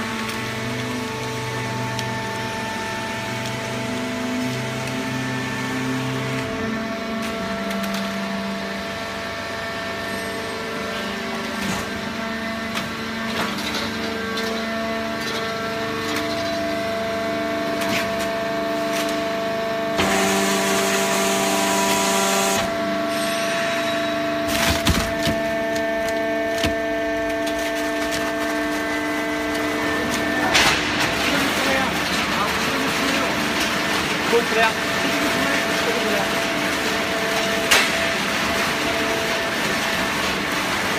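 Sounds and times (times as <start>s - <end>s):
baler machinery whine and hum: 0.0s - 40.9s.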